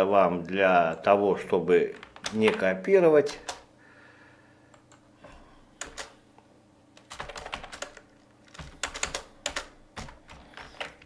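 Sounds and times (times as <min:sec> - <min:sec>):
typing on computer keyboard: 0:05.8 - 0:06.1, 0:07.0 - 0:11.0.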